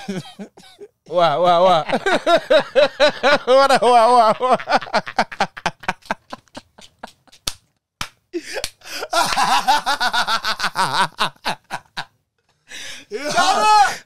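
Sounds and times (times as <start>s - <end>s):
man laughing: 0.0s - 7.4s, 8.4s - 12.1s.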